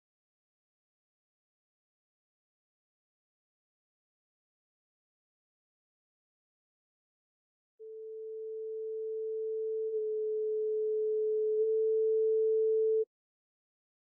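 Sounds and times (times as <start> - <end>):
pure sine tone: 7.8 - 13.1.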